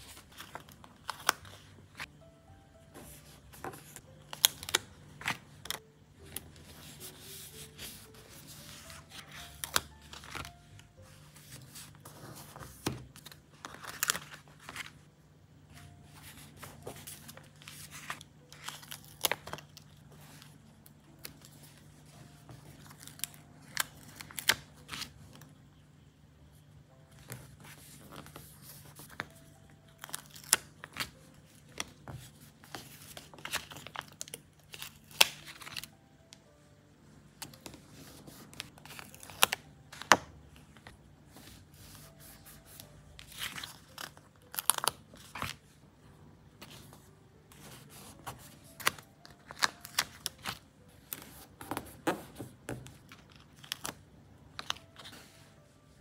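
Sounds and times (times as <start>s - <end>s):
paper crinkling: 3.0s - 15.1s, 27.3s - 36.0s, 41.8s - 45.8s, 46.6s - 51.8s
stickers being peeled: 32.7s - 36.0s, 37.4s - 40.2s, 42.8s - 45.6s, 48.6s - 51.8s.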